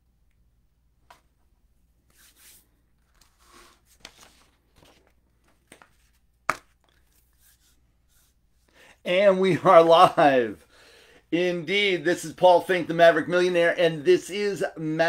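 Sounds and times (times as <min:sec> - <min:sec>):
faint rustling at a desk: 0:01.0 - 0:08.7.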